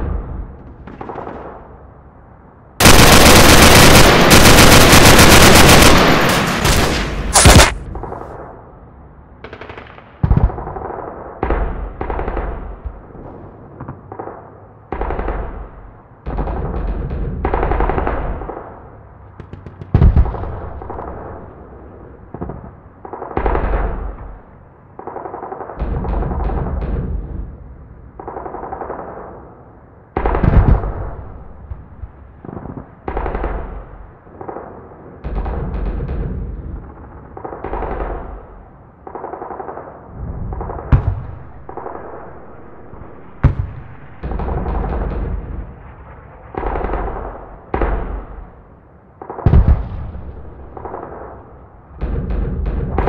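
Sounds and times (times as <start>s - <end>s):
loud single gunshots: 2.8s - 8.0s
rapid percussive gunfire bursts: 2.8s - 8.3s.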